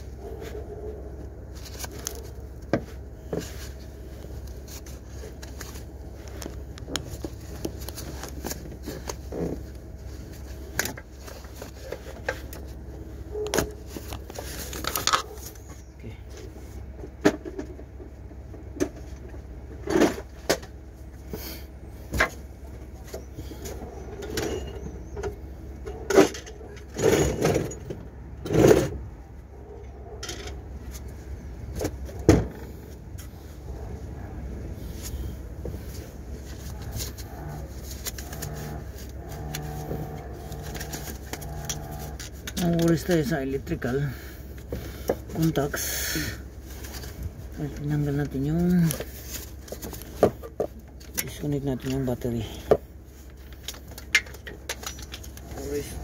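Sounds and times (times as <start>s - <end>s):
steady low hum: 0.0s - 56.0s
metal parts clattering: 53.6s - 56.0s.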